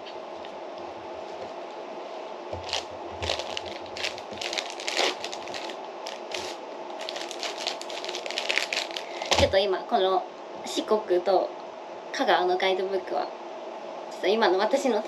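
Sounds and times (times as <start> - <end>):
faint steady hum: 0.0 - 15.0
plastic lid crinkling: 2.6 - 9.6.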